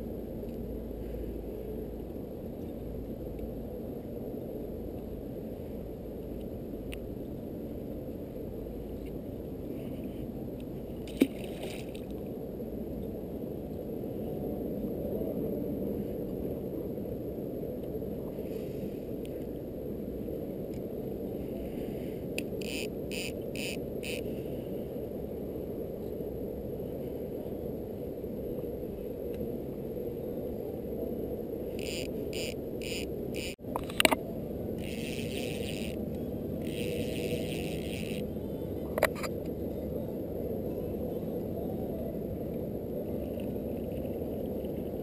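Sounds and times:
boat motor humming: 22.6 - 24.2, 31.8 - 33.6, 34.6 - 39.0
light evenly spaced ticks: 31.8 - 33.6, 34.8 - 38.3.

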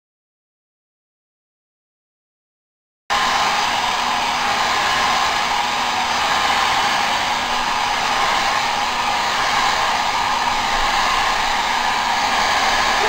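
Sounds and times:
hair dryer blowing air: 3.1 - 13.0.

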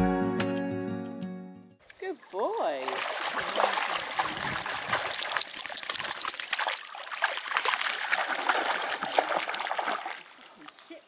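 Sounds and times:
splashing through shallow water: 2.2 - 11.0.

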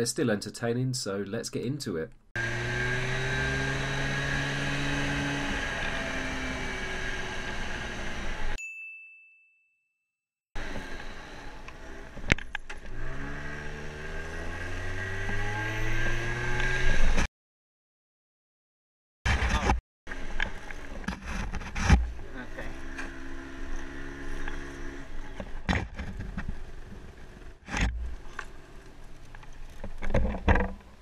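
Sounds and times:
moped engine running: 2.4 - 8.6, 22.1 - 29.3.

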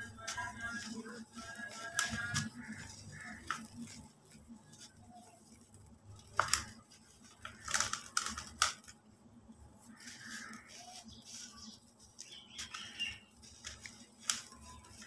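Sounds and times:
sharp cracks of chunks snapping: 6.2 - 9.0.

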